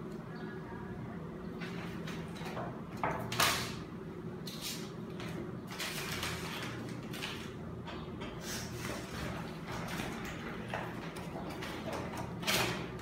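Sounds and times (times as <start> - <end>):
rustling and scraping materials: 4.4 - 13.0.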